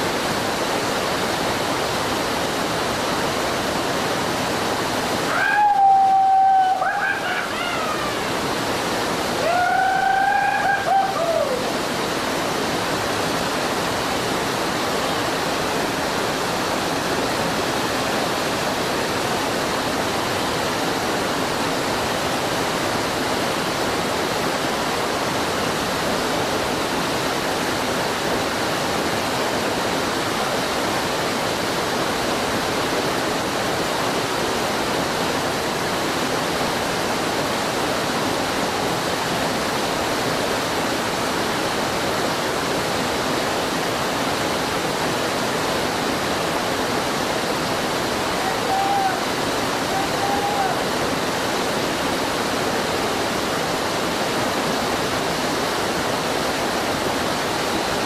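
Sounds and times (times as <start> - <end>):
waterfall rushing over rock: 0.0 - 58.0.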